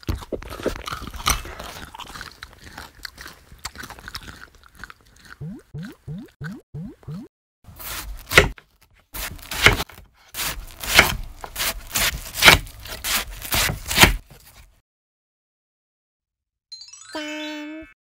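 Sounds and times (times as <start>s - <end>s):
knife slicing watermelon: 7.7s - 14.7s.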